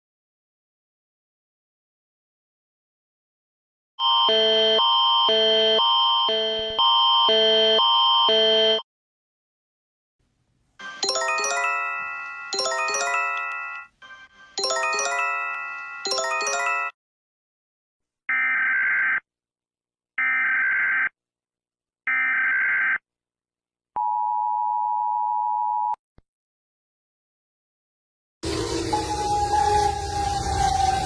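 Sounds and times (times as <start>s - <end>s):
bell-like alert chime: 10.8s - 17.0s.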